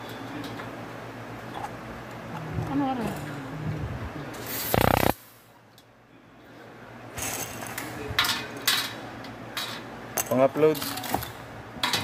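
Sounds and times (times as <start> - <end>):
electric screwdriver running: 4.7 - 5.1.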